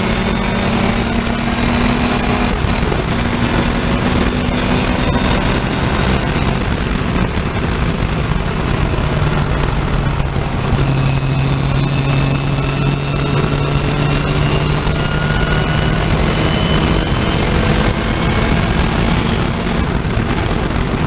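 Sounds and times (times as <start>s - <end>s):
racing car engine revving: 0.0s - 21.0s
wind and road noise: 0.0s - 21.0s.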